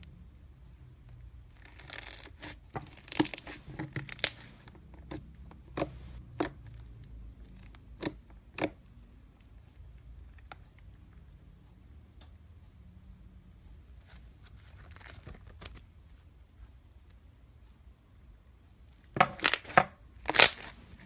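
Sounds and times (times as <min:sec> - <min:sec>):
slime crackling and popping: 0:01.5 - 0:06.8, 0:19.2 - 0:20.8.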